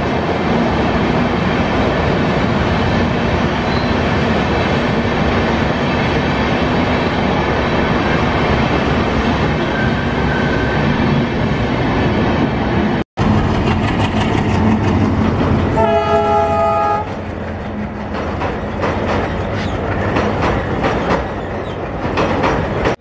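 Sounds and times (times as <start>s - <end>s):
train wheels clattering on rails: 13.2s - 23.0s
train horn: 15.7s - 17.1s.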